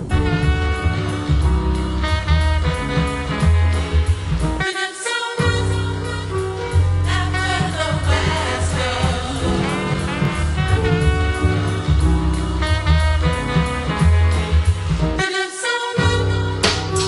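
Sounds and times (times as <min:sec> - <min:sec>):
hip-hop instrumental with heavy bass: 0:00.0 - 0:04.6, 0:06.6 - 0:15.2, 0:16.1 - 0:17.0
person singing: 0:04.6 - 0:10.8, 0:15.2 - 0:17.0.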